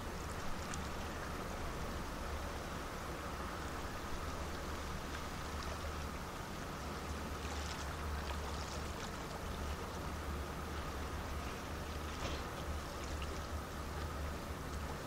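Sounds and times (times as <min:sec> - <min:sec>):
water lapping against stones: 0:04.1 - 0:15.0.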